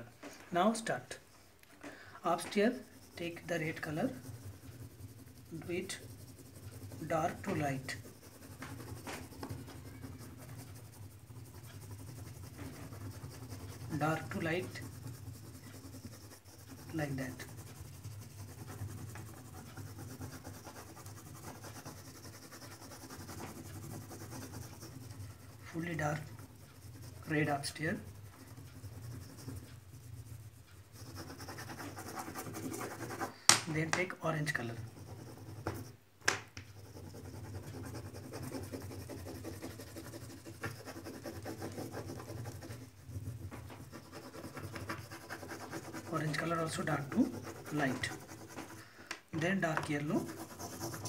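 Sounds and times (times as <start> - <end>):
oil pastel scratching on paper: 2.2 - 36.0, 36.6 - 51.0
sharp tap: 33.5 - 34.1.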